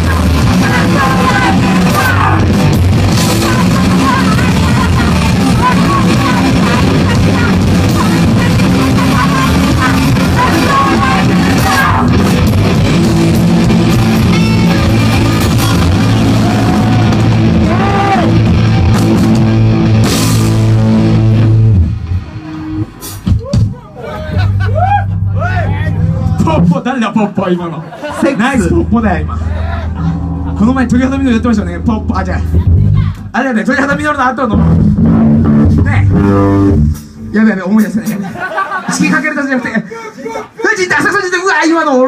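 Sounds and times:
person shouting lead vocal: 0.0 - 2.6, 3.2 - 12.2, 14.0 - 18.5, 39.8 - 41.1
rock band playing loud: 0.0 - 26.8, 27.9 - 39.3.

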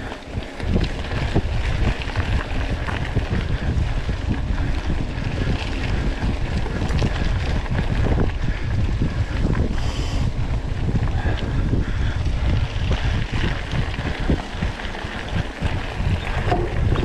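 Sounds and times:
wind rumbling on microphone: 0.0 - 17.0
bike knocks and rattles: 12.8 - 17.0.

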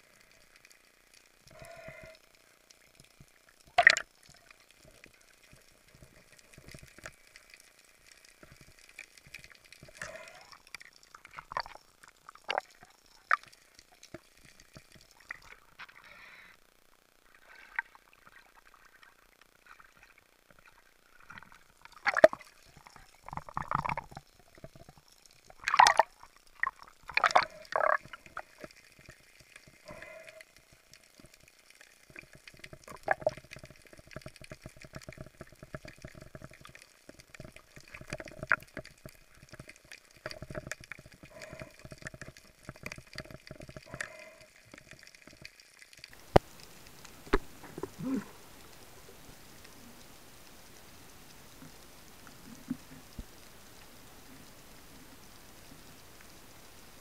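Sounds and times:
water splashes: 2.8 - 16.5, 17.2 - 57.0
water sloshing and dripping: 17.2 - 49.8.

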